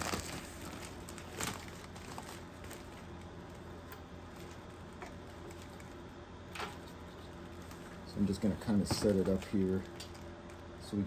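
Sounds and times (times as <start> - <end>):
plastic wrap rustling: 0.0 - 6.0, 6.6 - 10.4
low steady hum: 0.0 - 11.0.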